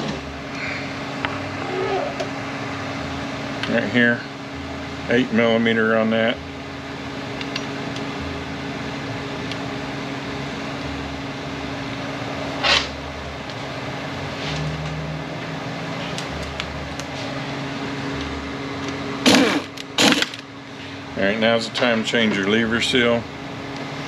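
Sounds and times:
shop machinery humming: 0.0s - 24.0s
pneumatic ratchet burst: 19.2s - 20.4s.

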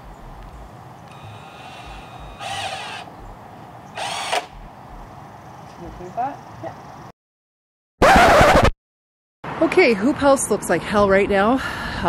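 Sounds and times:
impact driver driving screw into wood: 1.1s - 3.1s, 4.0s - 4.6s.

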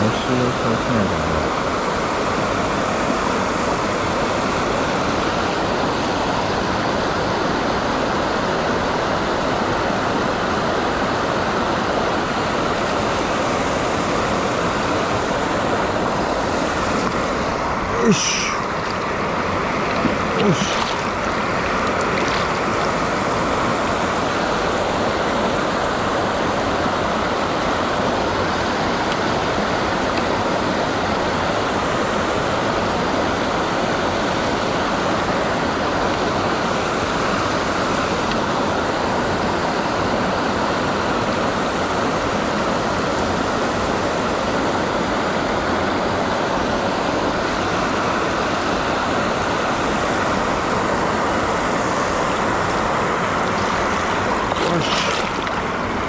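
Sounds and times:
river water rushing: 0.0s - 56.0s.

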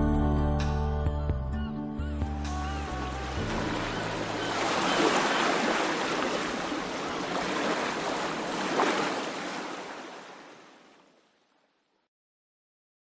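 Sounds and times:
waves washing onto shore: 2.4s - 11.3s.

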